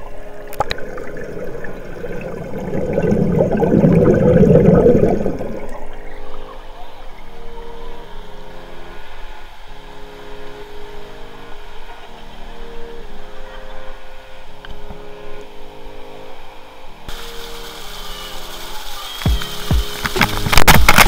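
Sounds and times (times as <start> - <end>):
music of sustained chords: 0.0 - 21.0
pool waterfall splashing: 17.1 - 21.0.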